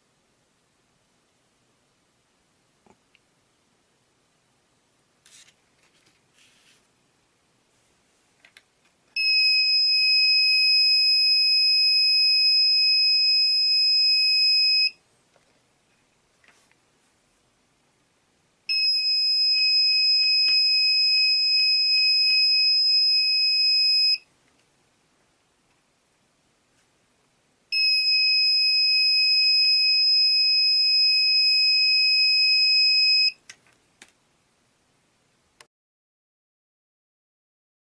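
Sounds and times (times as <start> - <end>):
high-pitched electronic buzzer: 9.2 - 15.0, 18.7 - 24.2, 27.8 - 33.4.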